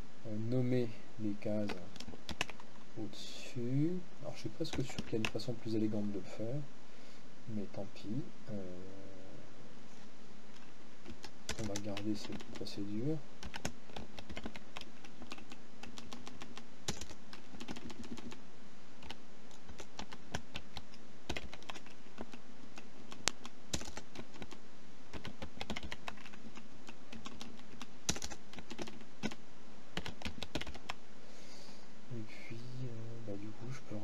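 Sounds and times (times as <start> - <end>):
computer keyboard typing: 1.7 - 2.7, 4.7 - 5.4, 11.0 - 12.7, 13.4 - 18.4, 19.0 - 29.4, 30.0 - 31.0.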